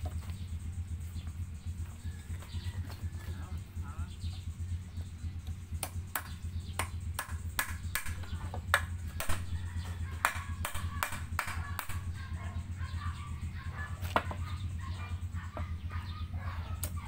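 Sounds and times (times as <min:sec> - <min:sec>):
hammer striking a brick: 0:05.8 - 0:12.0.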